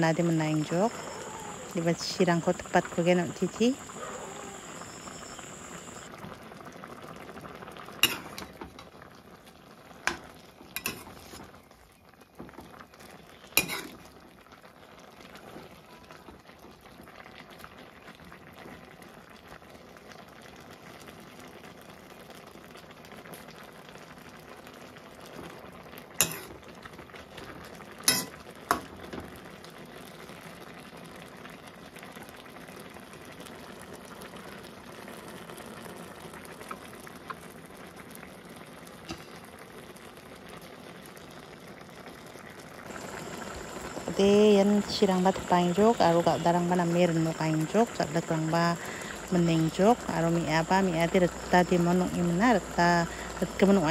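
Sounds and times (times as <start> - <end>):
broth bubbling in a wok: 0.0 - 53.9
metal ladle clinking on pan: 28.1 - 28.3.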